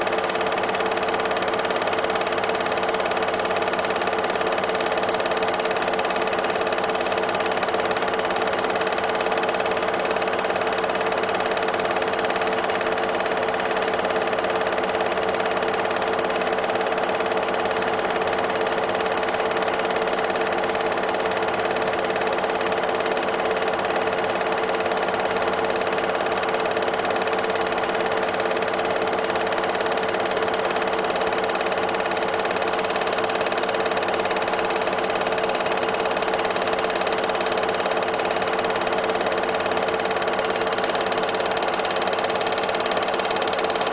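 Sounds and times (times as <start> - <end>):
film projector whirring: 0.0 - 43.9.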